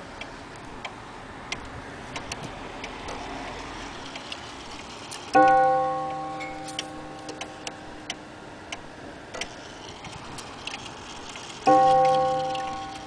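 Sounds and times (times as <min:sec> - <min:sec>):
pendulum clock ticking: 0:05.2 - 0:09.6, 0:10.4 - 0:13.0.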